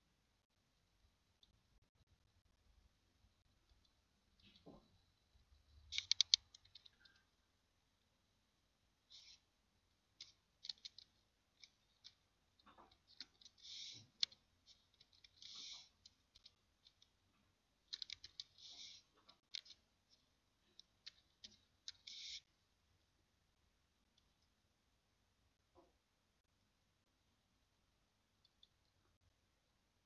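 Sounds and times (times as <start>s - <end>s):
keyboard keystrokes: 5.9s - 7.2s
mouse clicks: 5.9s - 7.3s, 10.2s - 12.2s, 12.9s - 17.1s, 17.9s - 22.5s
soft hissing sounds: 9.0s - 9.6s, 13.0s - 17.1s, 18.0s - 22.6s.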